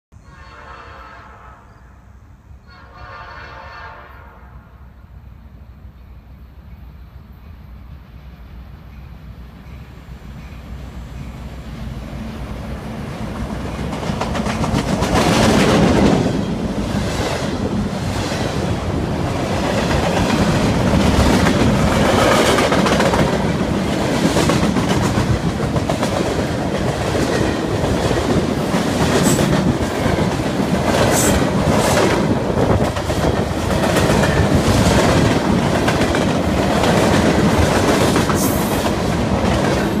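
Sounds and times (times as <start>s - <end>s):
diesel locomotive engine: 0.2s - 40.0s
train wheels clattering: 13.5s - 40.0s.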